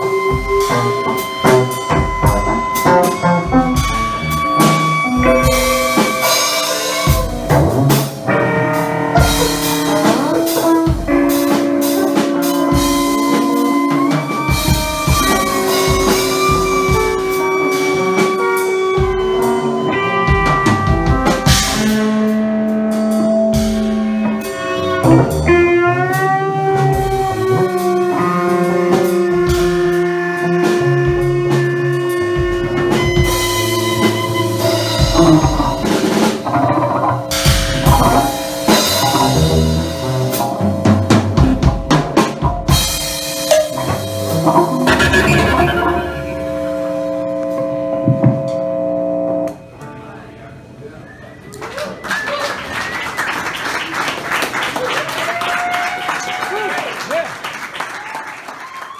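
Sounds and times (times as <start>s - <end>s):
drum and percussion hits: 14.6s - 17.3s, 37.4s - 46.8s
long held tones: 44.5s - 49.5s.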